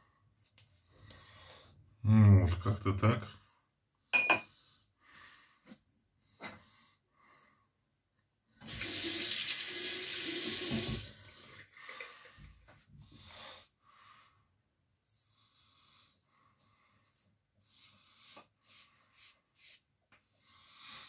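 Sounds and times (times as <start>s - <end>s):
sink tap running: 8.6s - 11.2s.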